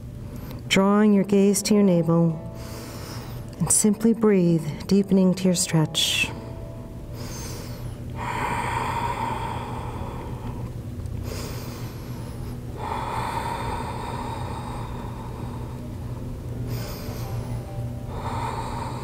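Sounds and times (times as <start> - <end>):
woman breathing deeply: 2.4 - 3.6, 6.4 - 19.0.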